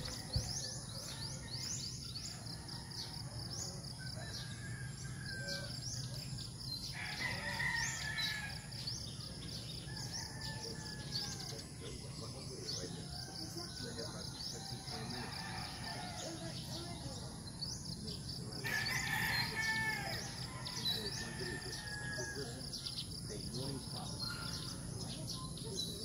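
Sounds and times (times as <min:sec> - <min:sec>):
rooster crowing: 0:06.9 - 0:08.8, 0:18.6 - 0:22.8.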